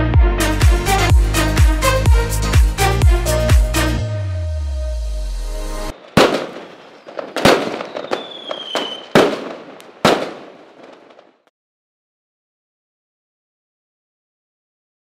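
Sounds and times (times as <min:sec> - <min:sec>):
dance music: 0:00.0 - 0:05.2
high firework whistle: 0:05.9 - 0:11.0
fireworks bangs with crackle: 0:05.9 - 0:11.5.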